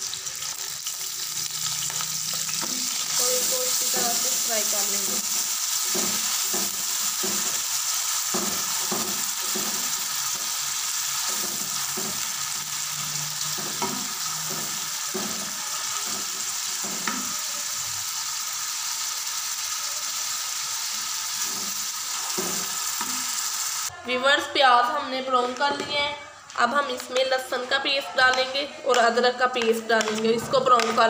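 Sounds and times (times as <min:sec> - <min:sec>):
onions sizzling in oil: 0:00.0 - 0:23.9
spatula stirring in pan: 0:00.9 - 0:17.4.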